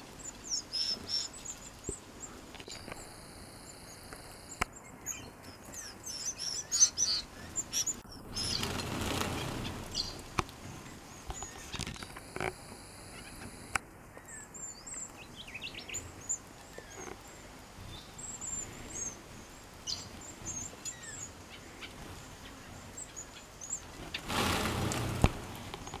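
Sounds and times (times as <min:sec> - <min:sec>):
finches chirping: 0:00.0 - 0:26.0
loud rush of noise: 0:24.2 - 0:25.7.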